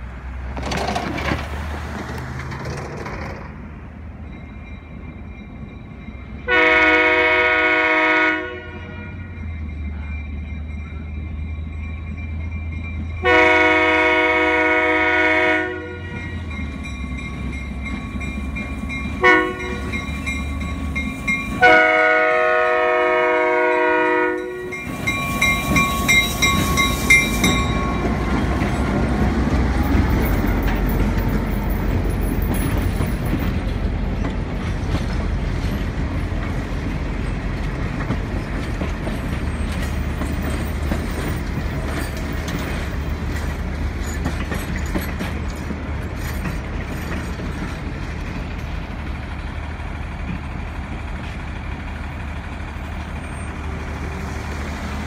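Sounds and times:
diesel engine rumbling: 0.0 - 55.0
train wheels clicking on rail joints: 0.2 - 6.5, 15.7 - 55.0
locomotive horn blasts: 6.4 - 9.4, 13.2 - 16.4, 19.2 - 20.0, 21.6 - 26.7.

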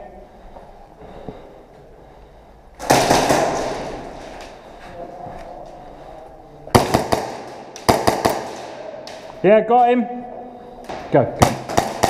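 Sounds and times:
rapid airsoft gunfire: 2.8 - 4.1, 6.8 - 8.8, 11.4 - 12.0.

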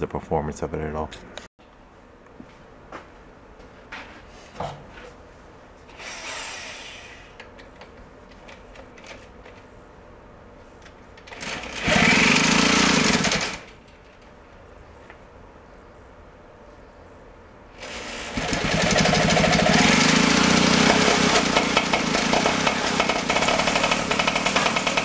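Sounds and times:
power drill drilling: 5.9 - 7.4, 11.3 - 13.7, 17.8 - 25.0.

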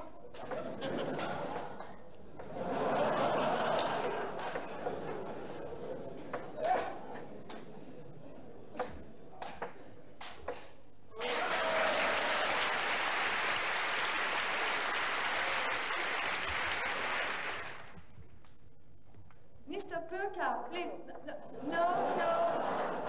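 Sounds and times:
audience applause: 2.8 - 5.6, 11.1 - 18.1.

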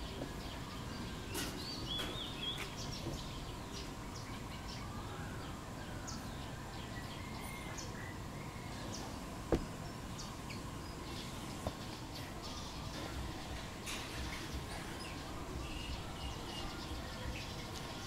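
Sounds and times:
bird chirps: 0.0 - 18.0
outdoor background hiss: 0.0 - 18.0.

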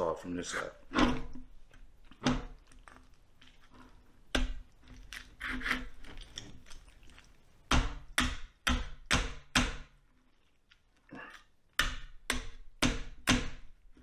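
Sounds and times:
knife chopping bone: 7.7 - 10.0, 11.8 - 13.7.

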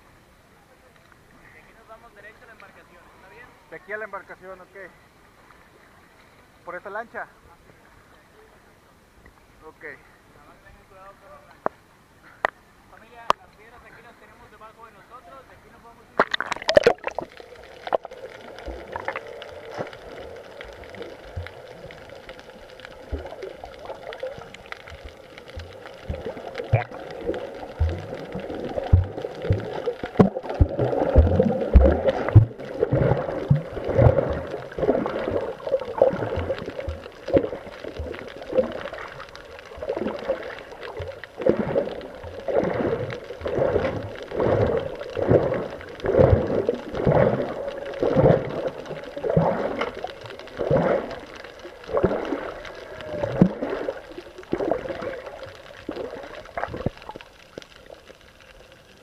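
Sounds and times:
faint steady hum: 0.0 - 59.0
rhythmic swimming swish: 16.2 - 58.0
water sloshing and gurgling: 16.2 - 59.0.

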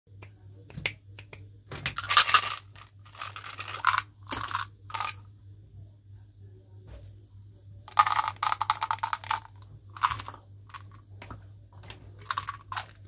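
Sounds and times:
candies rattling in plastic jar: 1.8 - 5.2, 7.9 - 13.0.

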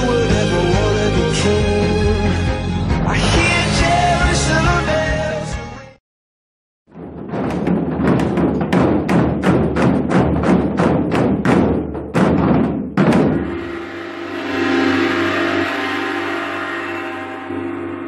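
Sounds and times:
drums playing fast strikes: 6.9 - 16.3
large gong ringing: 13.4 - 18.0.

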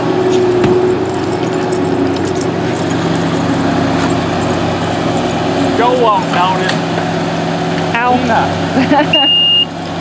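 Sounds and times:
loader diesel engine under load: 0.0 - 10.0.

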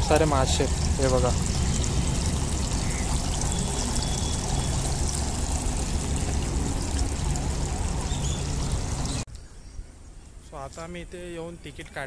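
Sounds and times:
water trickling into a pond: 0.0 - 9.3.

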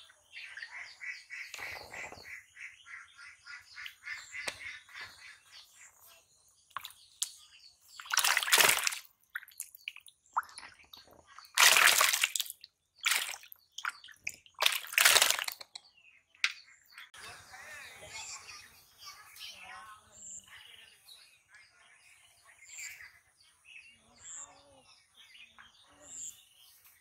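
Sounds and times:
birds chirping: 0.0 - 27.0
fish splashing in water tub: 6.7 - 7.3, 7.9 - 15.8
water sloshing: 7.9 - 15.8.

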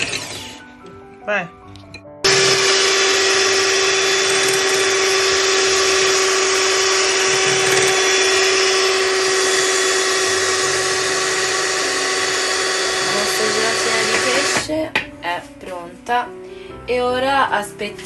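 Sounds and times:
electric hand mixer whining: 2.2 - 14.7.

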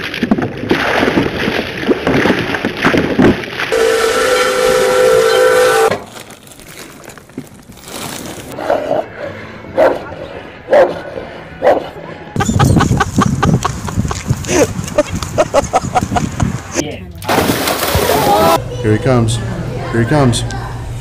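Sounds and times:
water splashing: 0.0 - 4.4, 13.7 - 18.6
steam locomotive whistle: 3.7 - 6.0.

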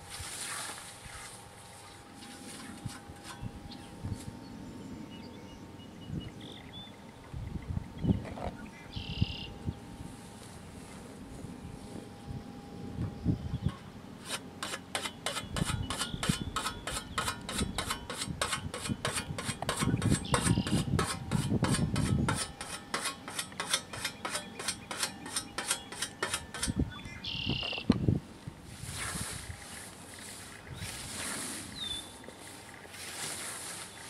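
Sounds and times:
scythe cutting through grass: 0.0 - 3.5, 14.2 - 27.5, 28.7 - 34.0
whetstone honing scythe blade: 14.2 - 27.5.

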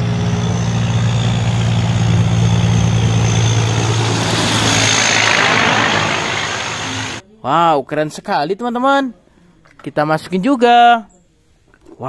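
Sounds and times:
truck diesel engine: 0.0 - 7.2
tyres and air rushing: 0.0 - 7.2.

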